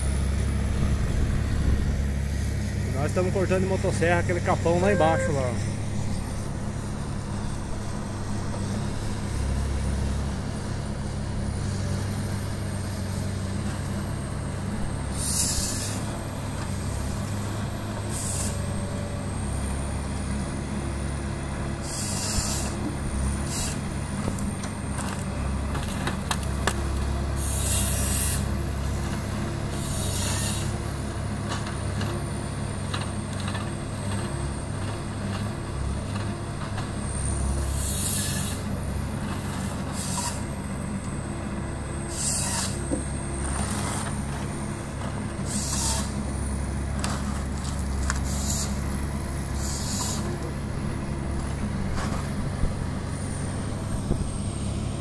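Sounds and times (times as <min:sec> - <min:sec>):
diesel engine running: 0:00.0 - 0:55.0
saw cutting logs hissing: 0:15.1 - 0:16.2, 0:18.0 - 0:18.8, 0:21.8 - 0:23.9, 0:27.3 - 0:28.6, 0:29.7 - 0:30.8, 0:37.5 - 0:38.7, 0:39.5 - 0:40.5, 0:42.0 - 0:42.9, 0:45.4 - 0:46.2, 0:48.1 - 0:48.9, 0:49.5 - 0:50.4.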